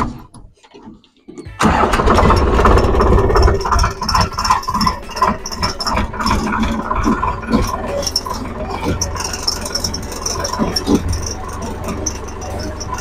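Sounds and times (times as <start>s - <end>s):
implement rattling and clicking: 0.0s - 13.0s
diesel tractor engine running: 1.4s - 13.0s.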